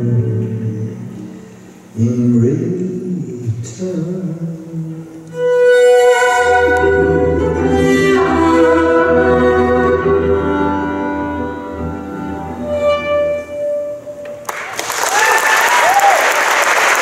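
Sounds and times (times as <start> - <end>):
violin long held notes: 5.0 - 14.5.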